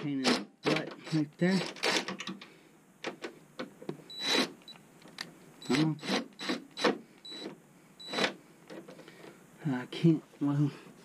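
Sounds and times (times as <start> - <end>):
cordless drill whine: 4.1 - 4.7, 5.6 - 8.4.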